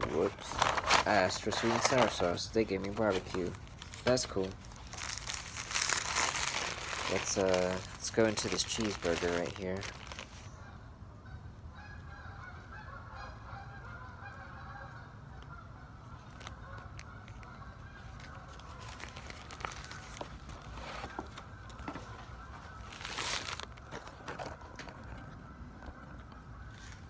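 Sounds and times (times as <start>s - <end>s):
paper wrapper rustling: 0.0s - 10.5s, 16.2s - 25.2s
geese honking: 5.8s - 27.0s.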